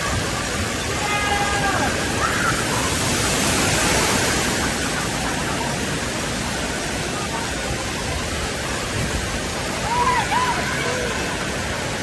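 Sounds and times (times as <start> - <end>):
water cascading and splashing: 0.0 - 12.0.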